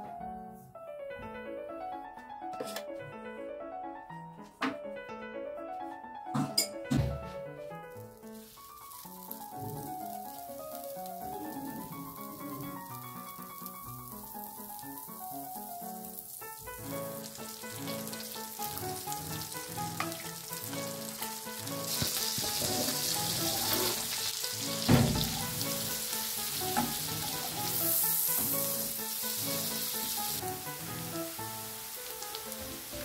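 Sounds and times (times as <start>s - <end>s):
background music: 0.0s - 33.0s
butter and onion sizzling in wok: 7.8s - 33.0s
sharp thump: 24.9s - 25.4s.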